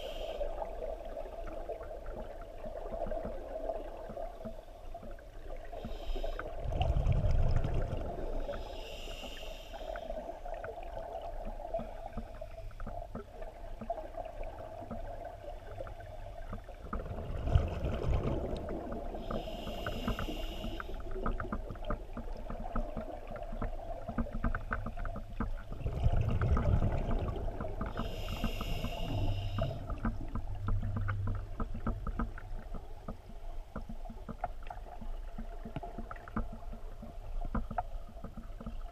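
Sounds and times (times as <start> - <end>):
regulator inhalation hiss: 0.0 - 0.6, 8.5 - 10.2, 19.2 - 21.0, 28.0 - 29.9.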